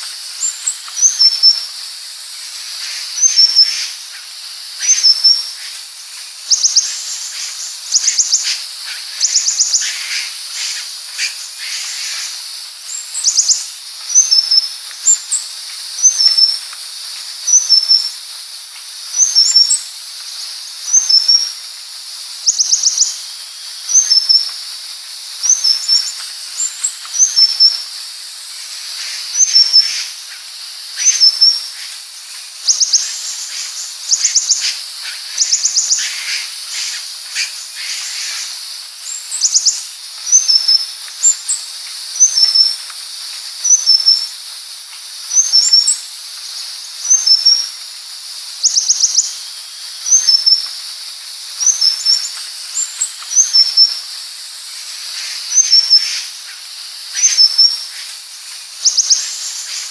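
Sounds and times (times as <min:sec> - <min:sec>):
bird chittering: 0:00.4 - 0:01.7, 0:02.8 - 0:05.7, 0:06.5 - 0:15.3, 0:25.5 - 0:27.8, 0:29.0 - 0:31.9, 0:32.6 - 0:41.5, 0:51.6 - 0:54.0, 0:55.4 - 0:58.0, 0:58.8 - 0:59.9.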